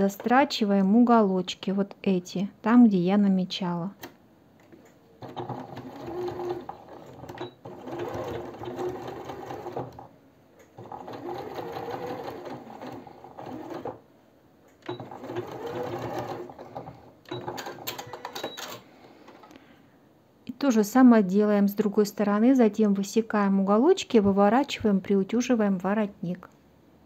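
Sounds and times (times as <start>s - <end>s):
sewing machine stitching: 5.2s - 10.1s, 10.8s - 14.0s, 14.8s - 18.8s.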